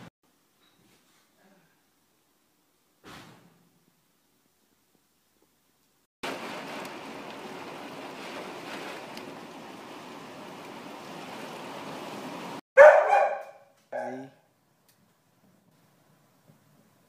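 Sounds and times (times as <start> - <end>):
rain and wind hiss: 6.2 - 12.6
dog barking loudly: 12.8 - 14.2.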